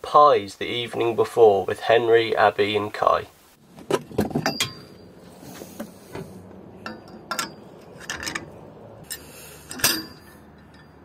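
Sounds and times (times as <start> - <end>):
metal clinking and knocking: 3.8 - 5.1, 6.8 - 11.0.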